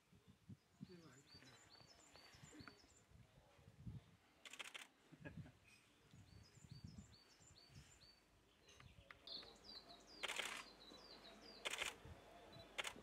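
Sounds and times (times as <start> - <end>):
warbler singing: 0.2 - 3.2, 6.1 - 13.0
short bursts of noise: 10.2 - 10.7, 11.6 - 12.0, 12.8 - 13.0.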